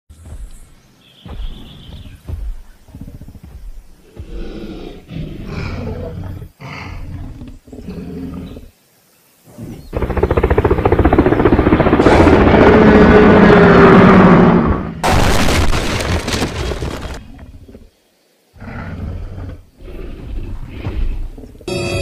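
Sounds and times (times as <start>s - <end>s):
dinosaur roars: 12.0s - 15.0s.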